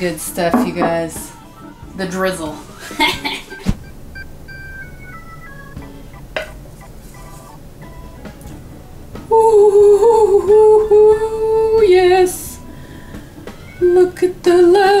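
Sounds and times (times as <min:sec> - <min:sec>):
woman humming: 0:09.3 - 0:12.3.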